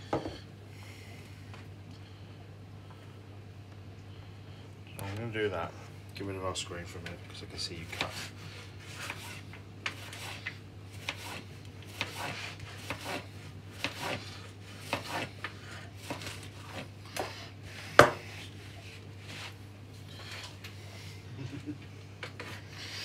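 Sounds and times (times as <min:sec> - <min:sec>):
knife slicing meat on board: 0:11.0 - 0:14.2.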